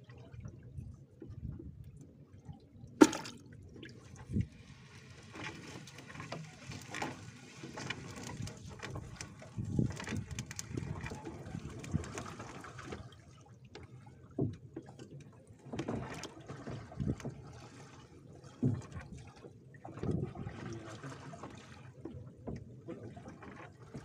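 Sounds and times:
water splashing and dripping: 2.9 - 4.5.

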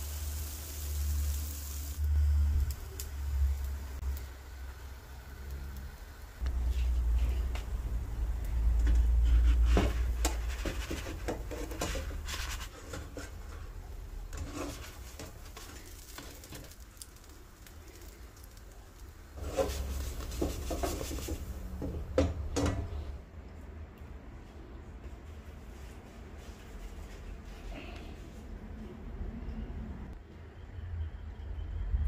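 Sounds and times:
spatula scraping a frying pan: 8.9 - 16.8, 19.4 - 21.5.

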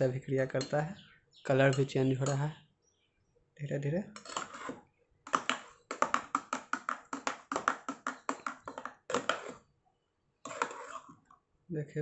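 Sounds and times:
spoon clinking against steel bowl: 0.4 - 2.6.

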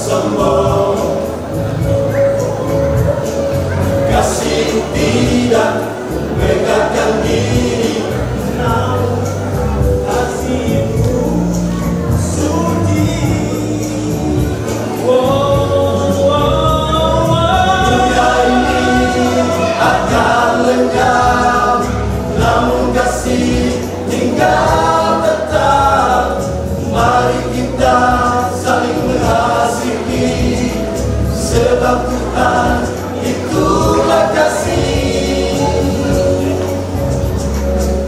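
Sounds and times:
choir singing: 0.0 - 38.0
low accompaniment: 0.0 - 38.0.

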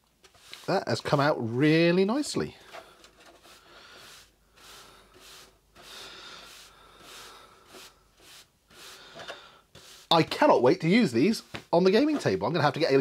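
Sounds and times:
brush swishing over plastic: 0.0 - 12.4.

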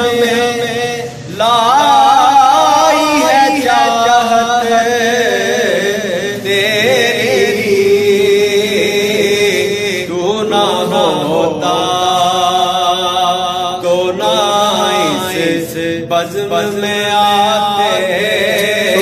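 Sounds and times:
man singing devotional song: 0.0 - 19.0.

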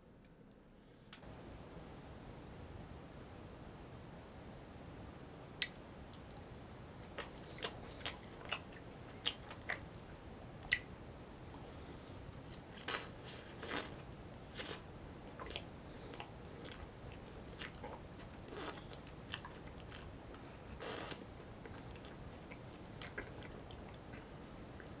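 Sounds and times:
biting and chewing ice cream: 14.6 - 24.3.

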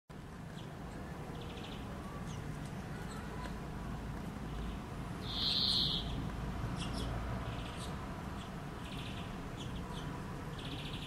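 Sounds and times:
songbirds chirping: 0.1 - 11.0
buzzy bird trill: 5.2 - 6.2
loud high bird call: 5.2 - 6.2.

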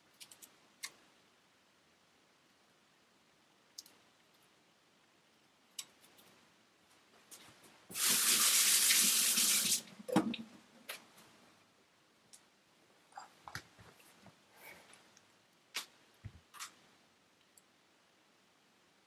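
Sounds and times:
kitchen tap running: 8.0 - 10.4.

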